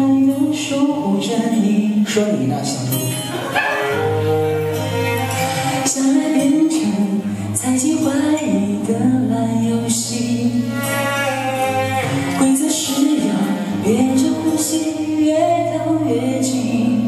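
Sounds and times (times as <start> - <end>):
person singing pop ballad: 0.0 - 3.2, 5.6 - 10.7, 12.0 - 17.0.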